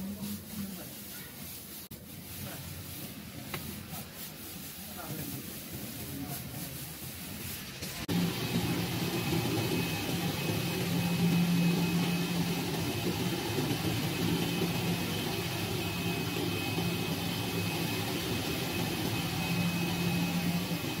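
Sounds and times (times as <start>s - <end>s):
cutting machine hum: 8.1s - 21.0s
faint high whine: 8.1s - 21.0s.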